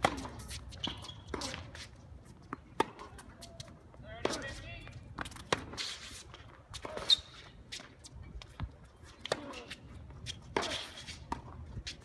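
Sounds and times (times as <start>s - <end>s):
racket hitting tennis ball: 0.0s - 1.9s, 2.5s - 7.9s, 9.2s - 9.8s, 10.4s - 11.6s
shoes scuffing on court: 0.0s - 12.0s.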